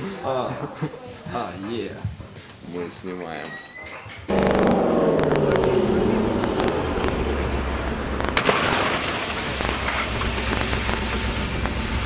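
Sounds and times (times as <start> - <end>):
sharp crack: 4.3 - 7.3, 8.1 - 12.0
truck engine running: 4.3 - 12.0.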